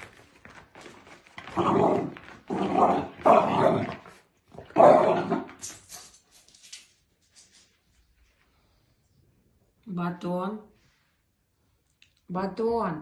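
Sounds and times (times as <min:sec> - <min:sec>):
puppy growling and barking: 0:01.5 - 0:05.7.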